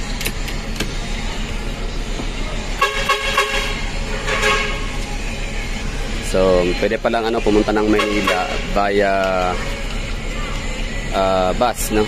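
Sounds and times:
bus engine idling: 0:00.0 - 0:12.0
vehicle horn honking: 0:02.8 - 0:04.9, 0:07.7 - 0:08.8.

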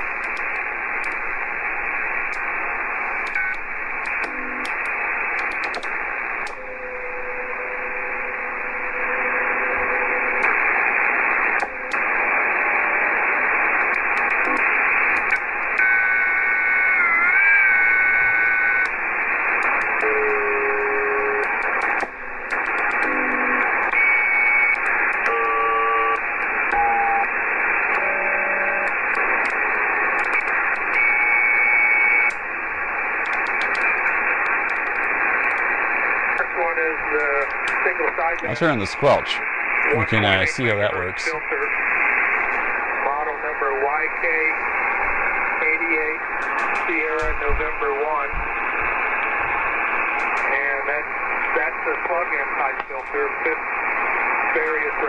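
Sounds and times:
radio static hiss: 0:00.0 - 0:55.0
radio whistling tones: 0:04.2 - 0:47.7.

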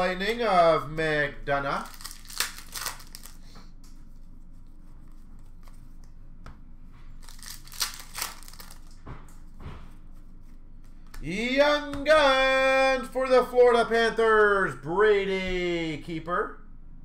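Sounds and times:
foil wrapper tearing and crinkling: 0:01.8 - 0:03.5, 0:07.2 - 0:09.0.

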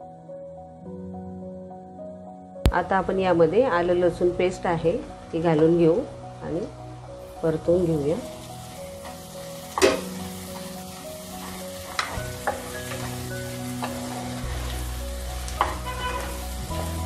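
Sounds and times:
vegetables sizzling in hot oil: 0:06.6 - 0:17.0
spatula stirring: 0:08.7 - 0:17.0.

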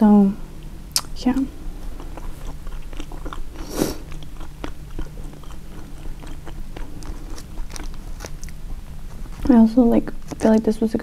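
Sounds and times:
person chewing food: 0:00.6 - 0:10.7
loud bite: 0:01.9 - 0:08.6.

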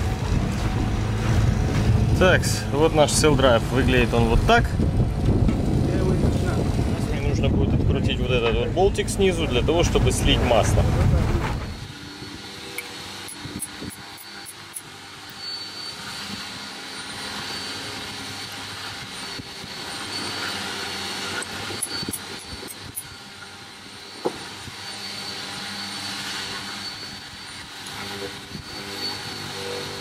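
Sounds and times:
engine drone: 0:00.0 - 0:30.0
metallic clicks of hand tools: 0:12.8 - 0:15.4, 0:21.4 - 0:23.1.

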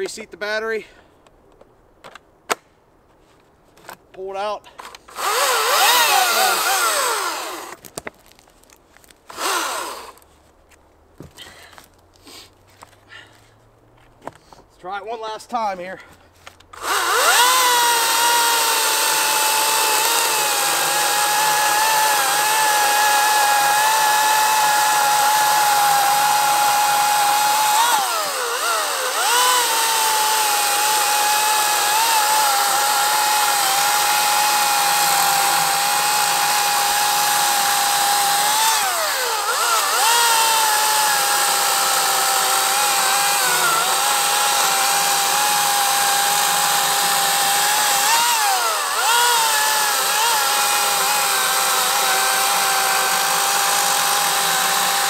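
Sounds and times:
electric chainsaw cutting log: 0:05.1 - 0:08.4, 0:09.3 - 0:10.2, 0:16.8 - 0:55.0.

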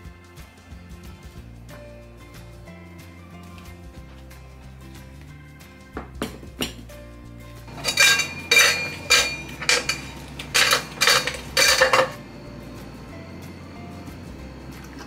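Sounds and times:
background music: 0:00.0 - 0:15.0
ice cubes clinking into glass: 0:07.7 - 0:12.2.

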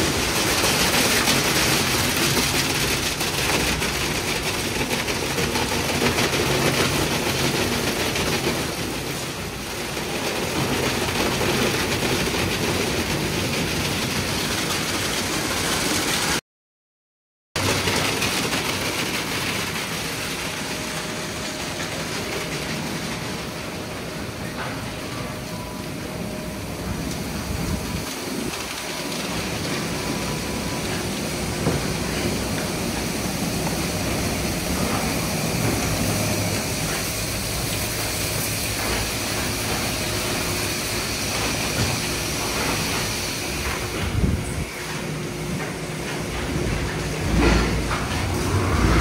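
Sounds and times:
low machinery hum: 0:17.6 - 0:49.0.

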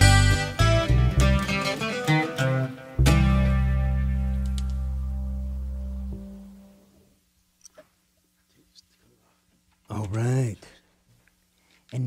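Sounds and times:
acoustic guitar playing: 0:00.0 - 0:06.8.

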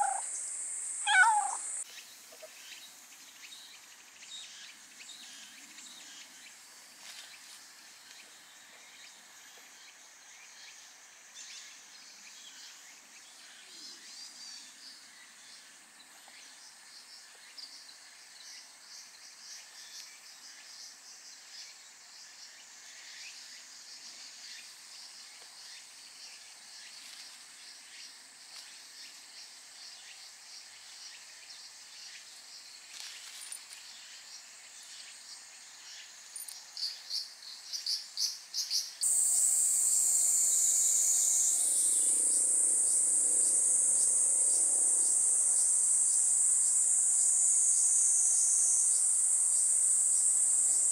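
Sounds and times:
cicadas calling: 0:00.0 - 0:06.7, 0:33.8 - 0:50.9.

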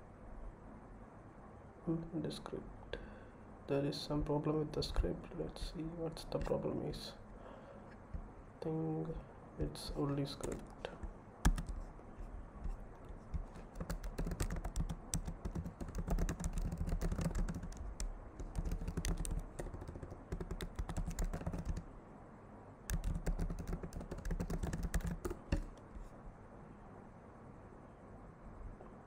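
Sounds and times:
typing on computer keyboard: 0:10.3 - 0:11.9, 0:13.0 - 0:21.9, 0:22.9 - 0:25.8.

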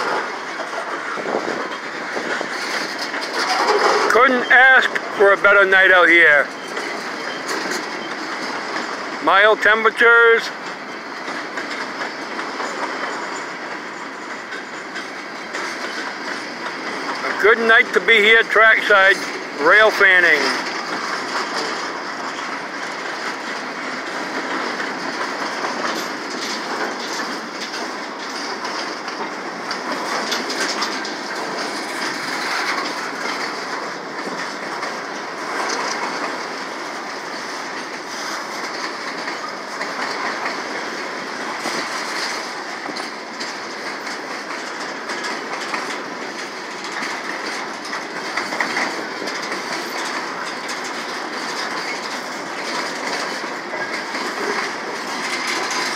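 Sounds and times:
train wheels clattering over rails: 0:00.0 - 0:55.9.

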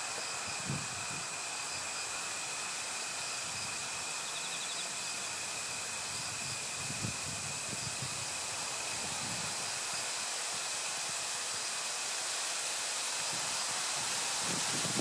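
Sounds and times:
outdoor background hiss: 0:00.0 - 0:15.0
wind rumble on microphone: 0:00.5 - 0:01.3, 0:06.2 - 0:09.7, 0:13.3 - 0:15.0.

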